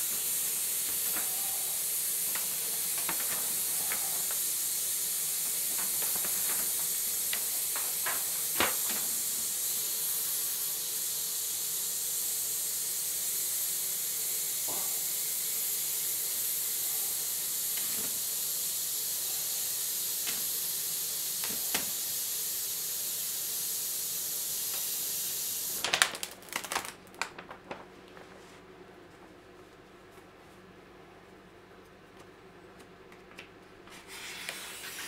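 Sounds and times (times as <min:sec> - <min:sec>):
steady hiss: 0:00.0 - 0:27.5, 0:33.9 - 0:35.0
paper backing peeled crinkling: 0:25.8 - 0:28.4.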